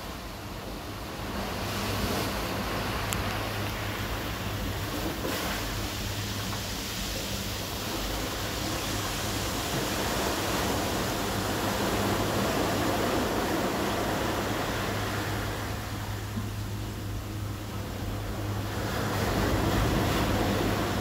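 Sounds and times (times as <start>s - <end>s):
steady low hum: 0.0s - 21.0s
surf washing up pebble beach: 4.0s - 16.0s, 18.4s - 21.0s.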